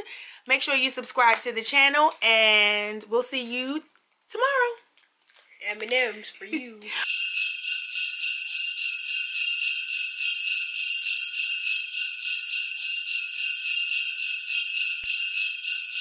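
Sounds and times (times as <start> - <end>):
jingle bells shaken: 7.0 - 16.0.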